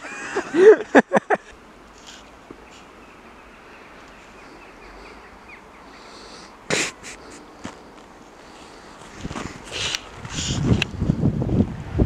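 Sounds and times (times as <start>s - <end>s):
faint rustling: 1.9s - 3.0s, 6.0s - 11.2s.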